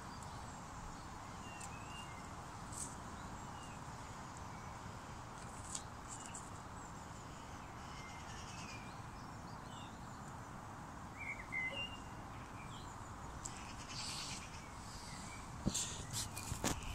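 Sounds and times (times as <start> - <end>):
steady low hiss: 0.0 - 16.9
bird chirps: 11.1 - 16.9
brief rustle: 15.6 - 16.9.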